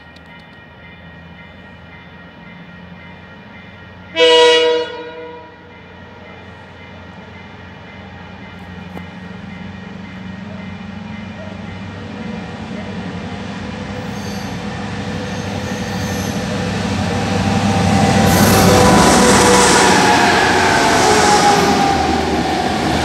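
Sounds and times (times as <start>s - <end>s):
train horn blast: 4.1s - 5.7s, 17.3s - 22.8s
locomotive engine drone: 4.9s - 23.0s.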